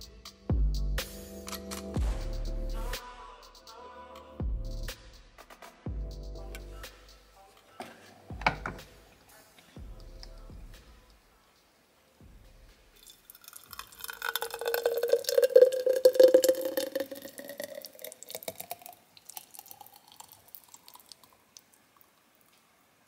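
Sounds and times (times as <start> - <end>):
drips: 12.9 - 22.8
smoothie gurgling into a jar: 13.0 - 21.4.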